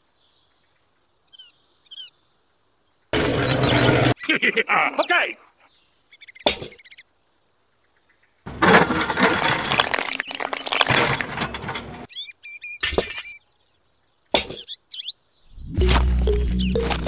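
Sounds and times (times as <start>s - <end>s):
wet cement pouring into bucket: 8.5s - 12.0s.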